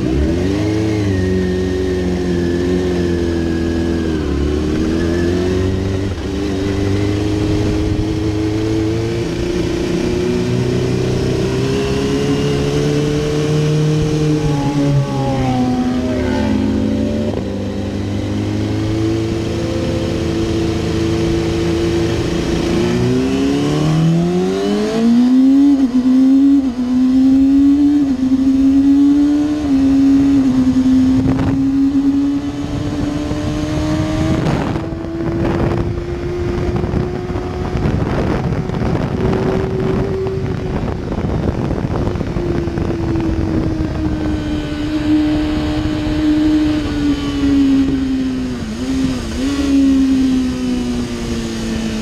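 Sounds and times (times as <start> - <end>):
motorcycle engine revving: 0.0 - 52.0.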